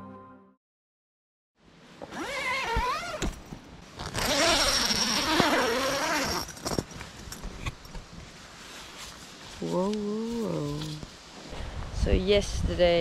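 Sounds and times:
tent zipper being pulled open: 2.0s - 7.0s.

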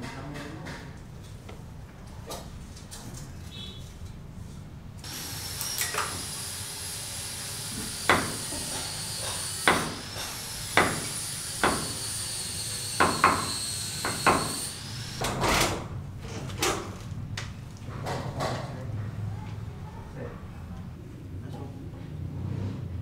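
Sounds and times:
hammer knocking on chisel: 8.1s - 8.5s, 9.6s - 10.0s, 10.8s - 12.0s, 13.0s - 14.6s.

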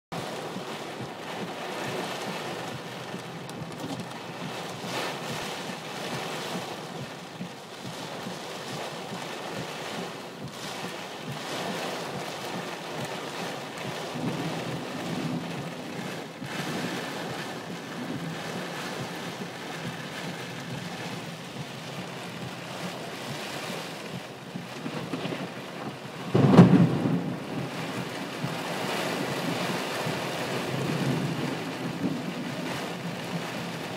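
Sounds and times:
heavy rain in gusty wind: 0.1s - 33.9s
loud thunder clap: 13.8s - 33.8s.

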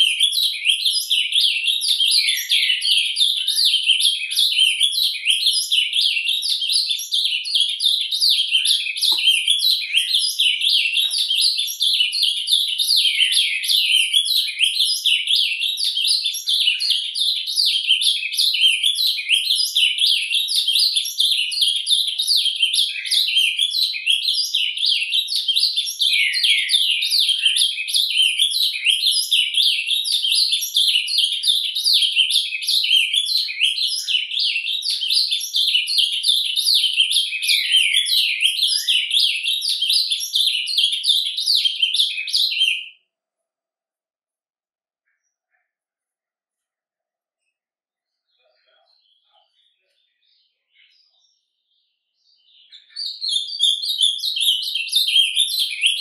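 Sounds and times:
bird twittering and warbling: 0.0s - 42.8s, 52.5s - 56.0s.

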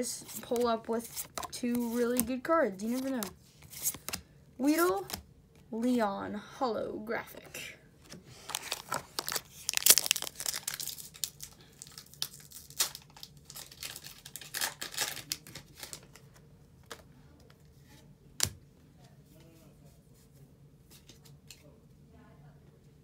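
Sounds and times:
foil wrapper tearing and crinkling: 8.5s - 16.1s.

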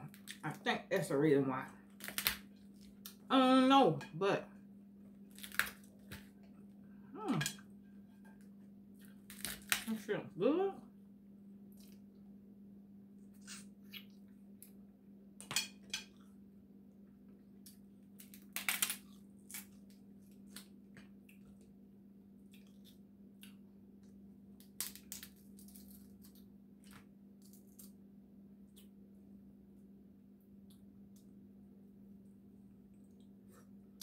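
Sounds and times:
steady low hum: 0.0s - 24.7s
crab shell cracking: 1.9s - 3.1s, 5.3s - 6.2s, 9.1s - 9.9s, 17.7s - 20.7s, 24.6s - 26.4s.

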